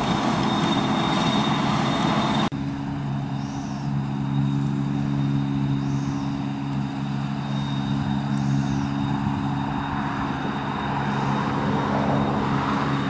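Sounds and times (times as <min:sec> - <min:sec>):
combine and tractor engine hum: 0:00.0 - 0:13.0.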